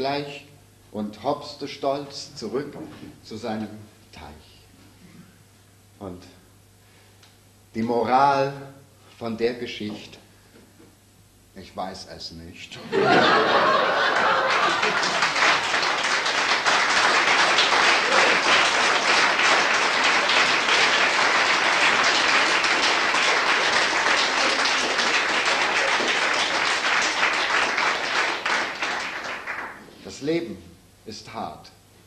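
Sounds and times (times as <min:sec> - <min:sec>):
audience applauding: 0:13.1 - 0:29.8.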